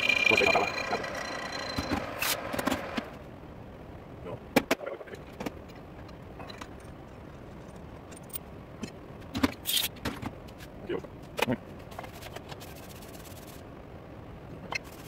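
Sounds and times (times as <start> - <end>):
metal lathe spinning down: 0.0 - 3.0.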